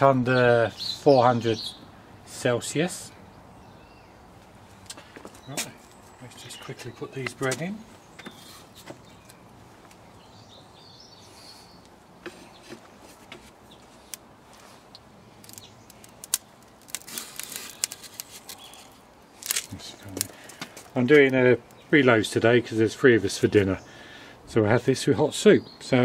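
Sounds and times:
faint outdoor background: 0:00.0 - 0:26.0
clay pots clicking and scraping: 0:11.8 - 0:21.8.

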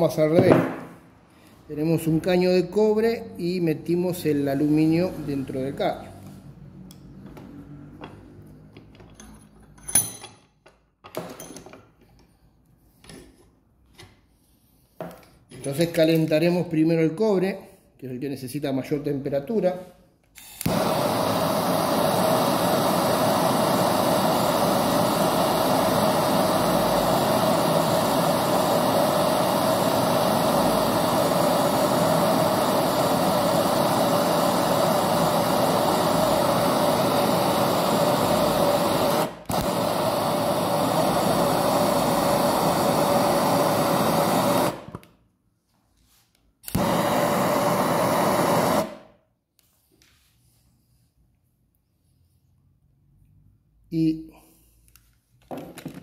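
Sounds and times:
gas torch flame hissing: 0:00.0 - 0:06.2, 0:20.4 - 0:45.1, 0:46.6 - 0:49.2.

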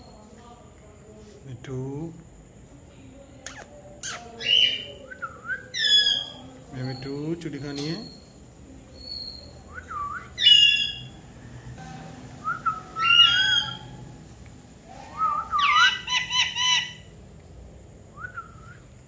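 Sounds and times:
parakeet whistled calls: 0:09.0 - 0:11.1, 0:12.5 - 0:13.9, 0:15.1 - 0:17.1.

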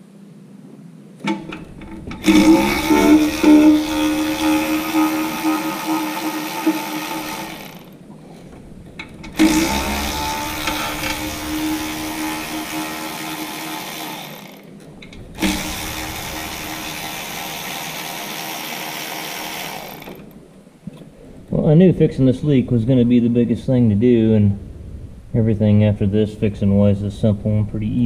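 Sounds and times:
power tool motor running: 0:01.8 - 0:08.0, 0:09.3 - 0:14.7, 0:15.4 - 0:20.4.

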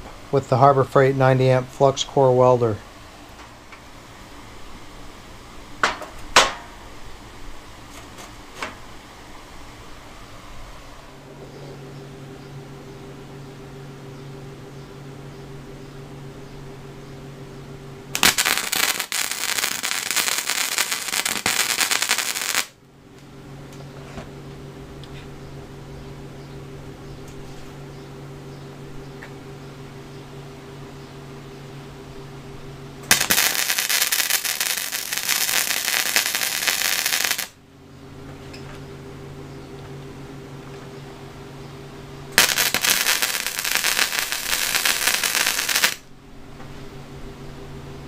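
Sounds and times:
steady low hum: 0:00.0 - 0:48.0
welding arc crackling: 0:18.1 - 0:22.8, 0:33.0 - 0:37.6, 0:42.3 - 0:46.0.

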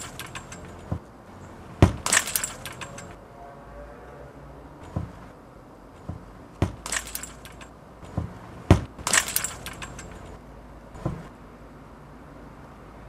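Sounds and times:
football kicked and bouncing: 0:01.8 - 0:02.1, 0:04.9 - 0:05.2, 0:06.1 - 0:06.9, 0:08.1 - 0:09.0, 0:11.0 - 0:11.3.

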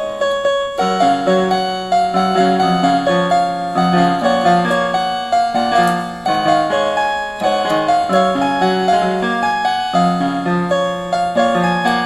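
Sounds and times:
electronic keyboard piano melody: 0:00.0 - 0:12.0.

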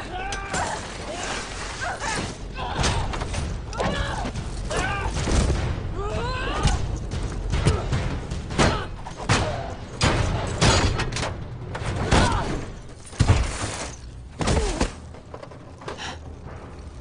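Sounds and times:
heavy blows and thuds: 0:02.3 - 0:13.6.

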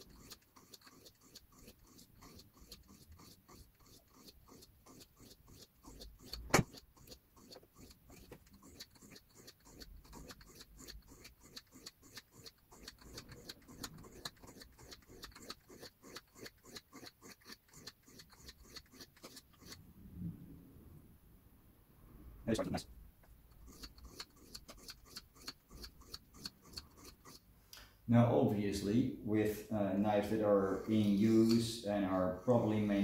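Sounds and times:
knife scraping on whetstone: 0:00.0 - 0:19.8, 0:23.5 - 0:27.4.

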